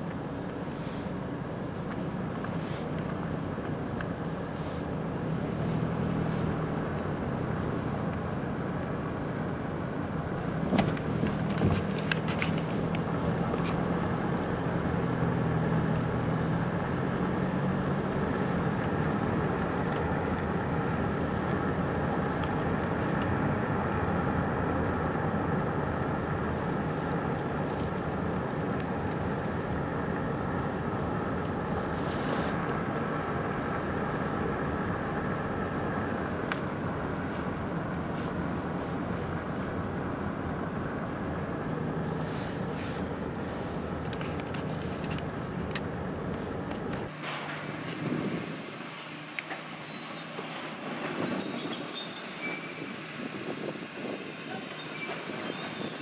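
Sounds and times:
car engine hum: 0.0 - 56.0
road noise: 0.0 - 56.0.

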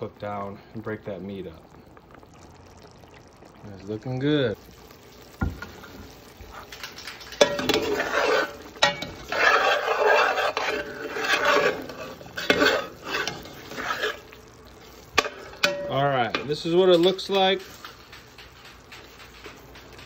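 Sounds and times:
sauce sloshing in pot: 0.3 - 20.0.

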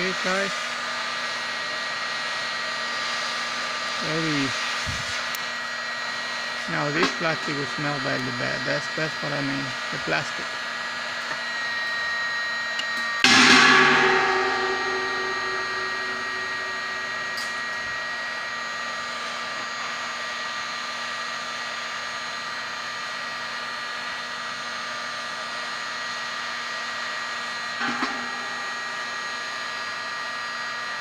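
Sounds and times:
heat gun blowing with motor whine: 0.0 - 31.0
metallic clang: 13.2 - 18.0, 27.8 - 29.9.

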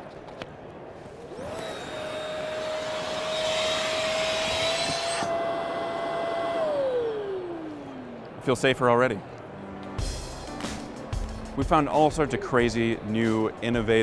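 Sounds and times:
electric fan whine: 0.7 - 11.6.

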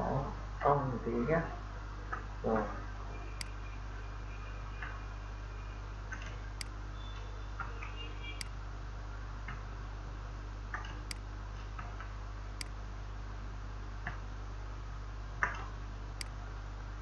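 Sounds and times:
low electrical hum: 0.0 - 17.0
computer mouse clicks: 15.4 - 16.4.

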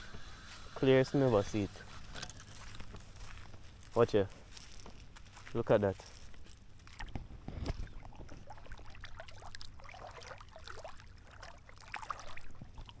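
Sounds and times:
seawater sloshing around legs: 6.8 - 13.0.

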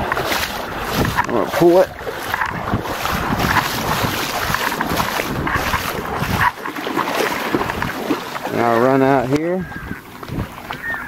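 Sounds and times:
water splashing and sloshing: 0.0 - 11.0
wind buffeting microphone: 0.0 - 11.0.

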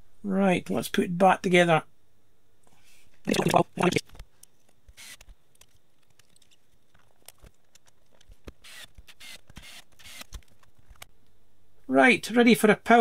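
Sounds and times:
screwdriver scratchy rasps: 5.0 - 5.3, 8.6 - 10.4.

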